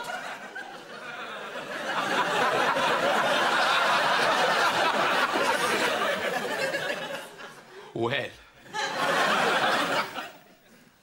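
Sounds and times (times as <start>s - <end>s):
studio audience laughing: 0.0s - 7.9s, 8.6s - 10.9s.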